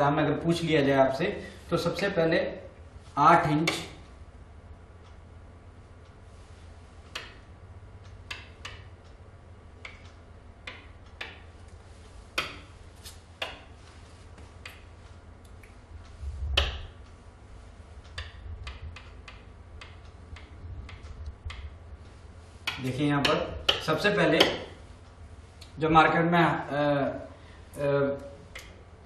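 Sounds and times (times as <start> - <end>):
low steady hum: 0.0 - 29.0
hand tapping on whiteboard: 12.4 - 12.7.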